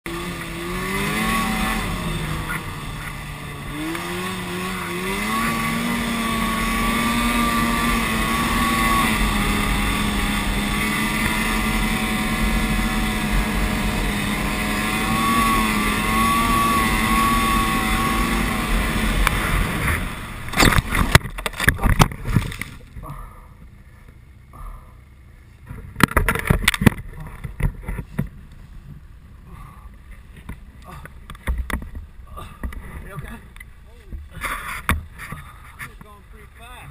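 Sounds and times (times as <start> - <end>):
snowmobile engine running: 0.1 - 36.9
snowmobile crashing with loud bangs: 19.2 - 22.8.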